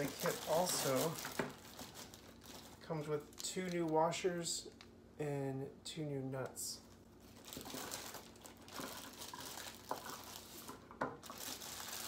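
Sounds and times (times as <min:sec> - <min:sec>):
plastic bag crinkling: 0:00.0 - 0:04.2, 0:06.8 - 0:12.0.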